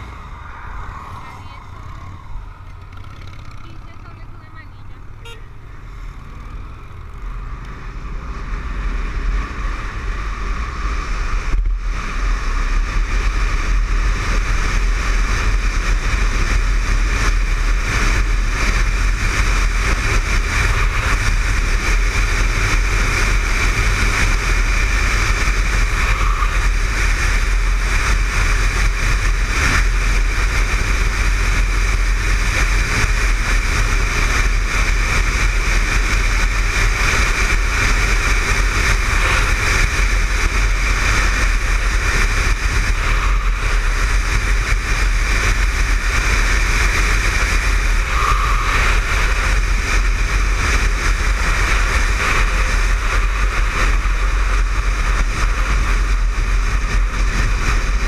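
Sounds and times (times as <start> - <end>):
wind rush on microphone: 0.0 - 2.9, 8.0 - 58.0
motorcycle engine accelerating: 0.0 - 58.0.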